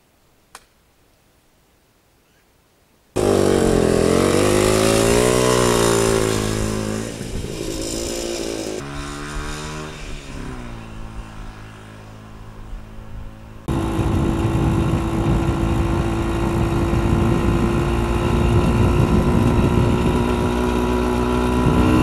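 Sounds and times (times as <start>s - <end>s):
motorcycle engine revving: 3.2s - 22.0s.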